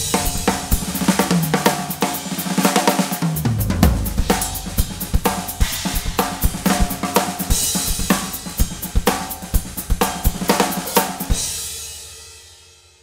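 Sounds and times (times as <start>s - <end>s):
cymbal wash: 0.0s - 9.2s
drum kit groove: 0.0s - 11.6s.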